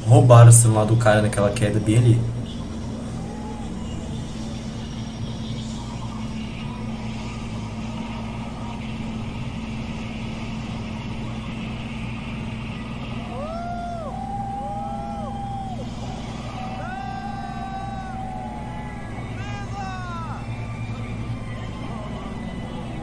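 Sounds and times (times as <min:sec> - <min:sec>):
low hum: 0:00.0 - 0:23.0
crowd rumbling: 0:01.5 - 0:23.0.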